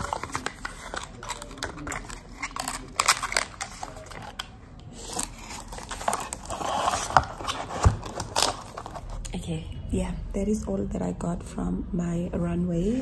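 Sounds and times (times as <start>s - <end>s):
cardboard box crinkling: 0.0s - 4.4s, 5.0s - 9.2s
cardboard rustling: 0.0s - 9.2s.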